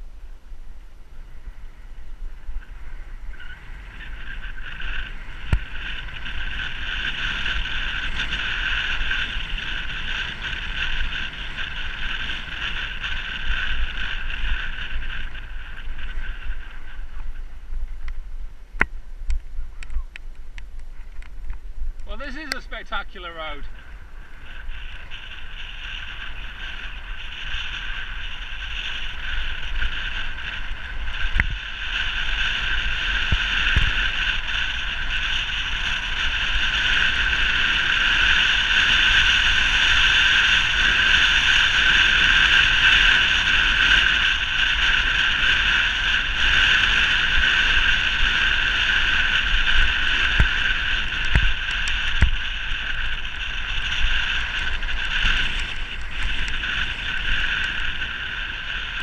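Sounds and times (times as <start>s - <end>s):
low rumble: 0.0s - 36.5s
wind rushing over microphone: 0.0s - 59.0s.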